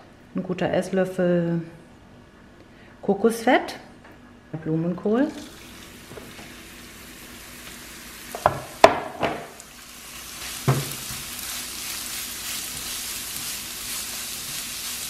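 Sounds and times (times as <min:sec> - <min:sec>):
food sizzling in a wok: 0:05.4 - 0:15.0.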